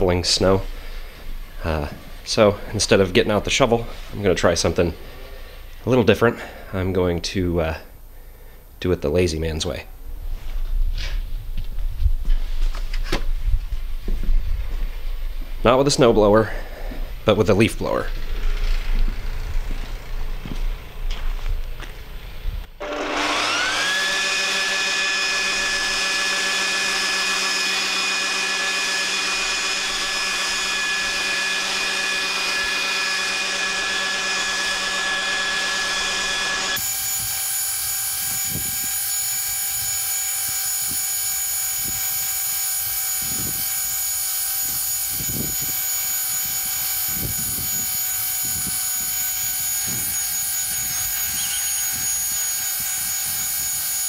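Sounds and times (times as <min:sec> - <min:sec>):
leaf blower whine: 0:00.0 - 0:06.9, 0:18.0 - 0:54.0.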